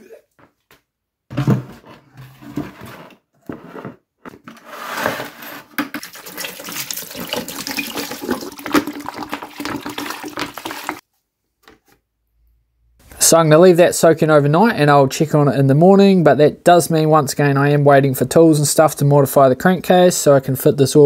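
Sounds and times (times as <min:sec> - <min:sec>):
liquid pouring into bucket: 0:06.0 - 0:11.0.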